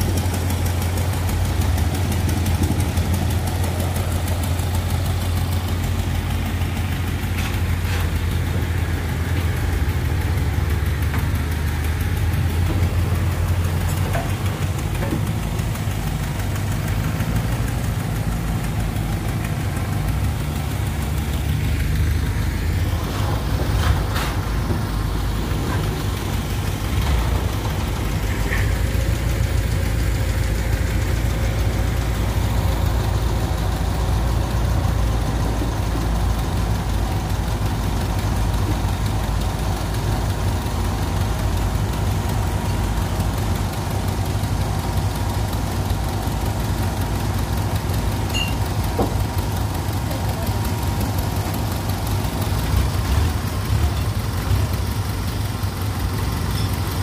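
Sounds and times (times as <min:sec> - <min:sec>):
generator engine humming: 0:00.0 - 0:57.0.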